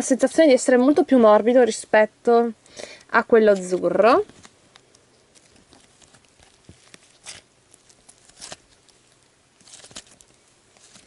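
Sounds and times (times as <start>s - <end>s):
slime squishing: 4.2s - 11.0s.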